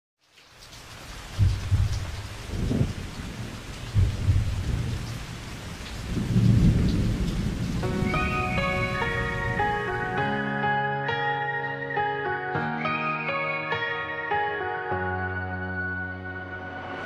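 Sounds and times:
steady rain: 0.2 - 10.6
thunder rumbling: 1.2 - 10.2
melodic music: 7.8 - 17.0.

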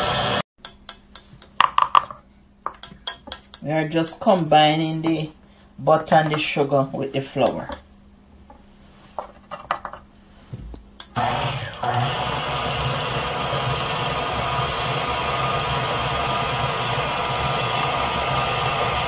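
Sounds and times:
stand mixer running: 0.0 - 0.4, 11.2 - 19.0.

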